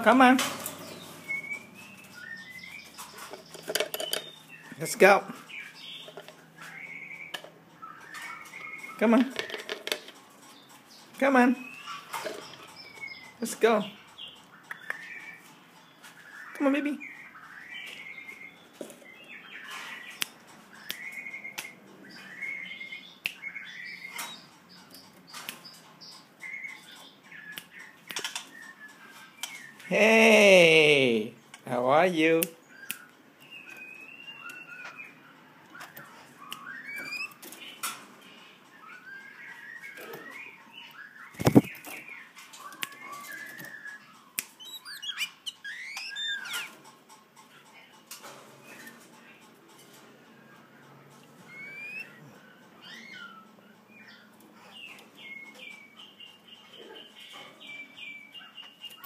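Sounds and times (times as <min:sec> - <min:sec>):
bird chirping calls: 0:00.0 - 0:59.0.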